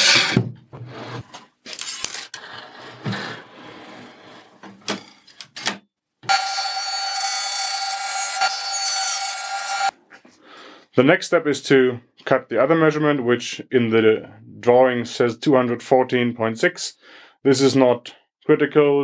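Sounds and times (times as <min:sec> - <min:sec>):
board fed into saw blade: 0:06.3 - 0:09.9
table saw whining: 0:06.3 - 0:09.9.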